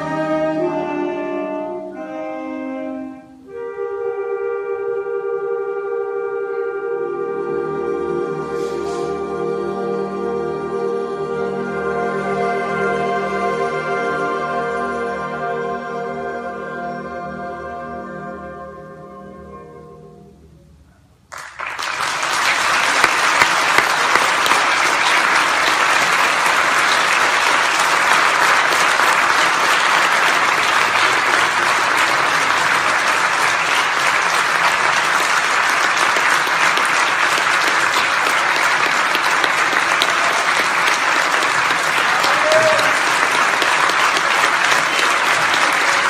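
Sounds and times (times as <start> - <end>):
audience applauding: 21.3 - 46.0.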